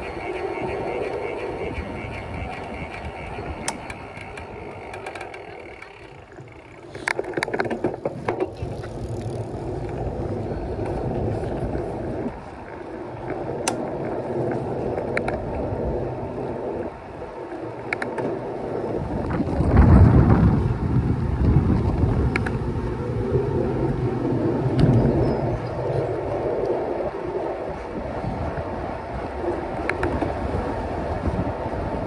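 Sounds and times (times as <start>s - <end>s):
bicycle tyres rumbling: 0.0s - 32.0s
wind on microphone: 0.0s - 32.0s
clicks and rattles: 2.1s - 9.2s.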